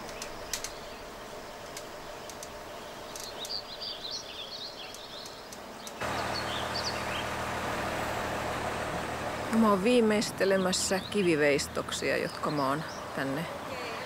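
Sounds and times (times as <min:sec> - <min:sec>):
bird chirps: 0:02.8 - 0:07.4
crane engine low hum: 0:06.0 - 0:13.2.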